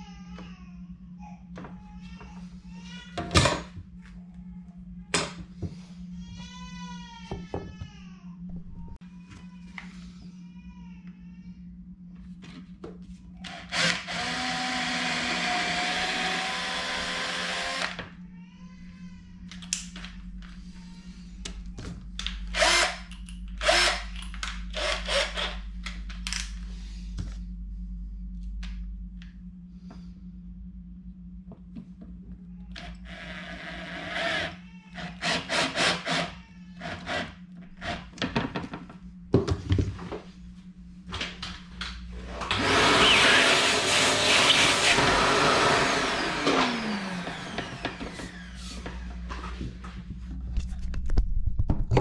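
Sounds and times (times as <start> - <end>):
vacuum cleaner running: 12.4 - 18.1, 21.8 - 22.9, 23.6 - 25.5, 32.7 - 36.2, 41.2 - 50.1
cordless drill bursts: 13.5 - 18.0, 22.6 - 23.0, 23.6 - 24.1, 42.5 - 47.9.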